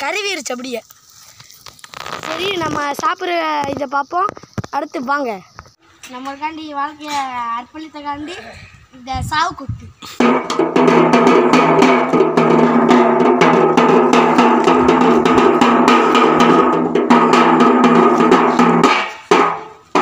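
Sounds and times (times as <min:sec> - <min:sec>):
frame drum beaten with sticks: 0:10.2 - 0:20.0.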